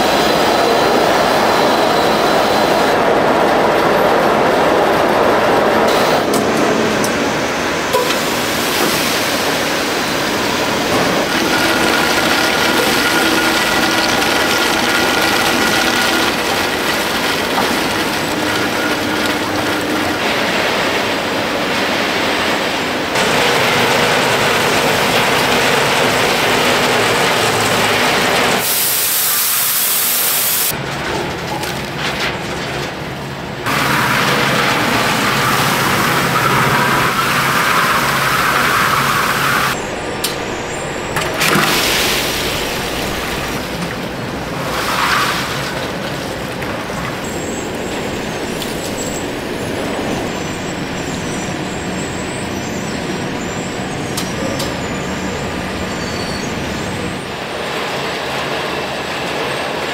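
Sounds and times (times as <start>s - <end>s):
factory machine noise: 0.0s - 59.9s.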